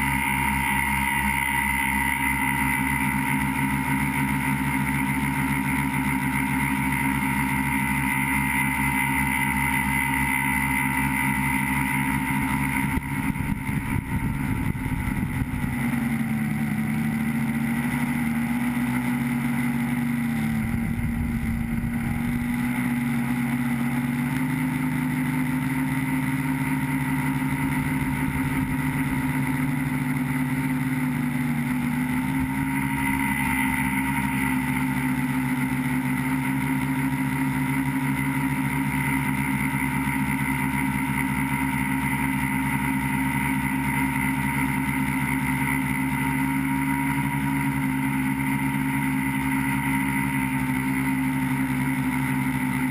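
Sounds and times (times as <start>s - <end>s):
drone motors whining: 0.0s - 52.9s
rough low rumble: 20.5s - 23.6s.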